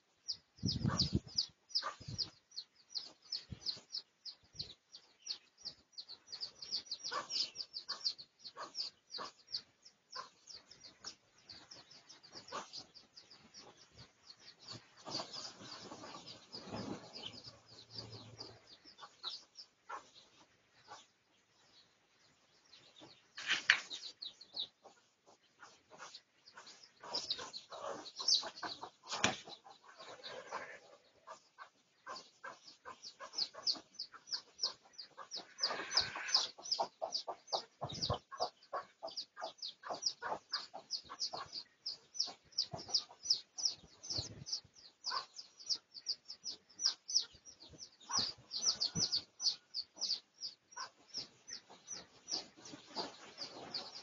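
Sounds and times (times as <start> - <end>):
low clucks: 23.0 - 41.6.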